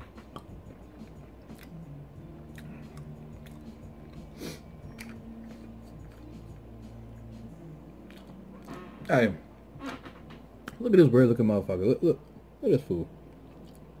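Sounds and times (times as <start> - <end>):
wet mouth clicks: 0.2 - 1.8, 2.5 - 4.3
close chewing: 0.3 - 6.6, 8.0 - 8.4.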